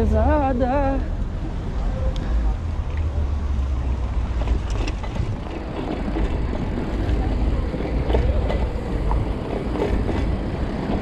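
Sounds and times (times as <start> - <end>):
bike road noise: 0.0 - 11.0
wind rumbling on microphone: 1.1 - 11.0
tyres knocking over rail tracks: 4.3 - 11.0.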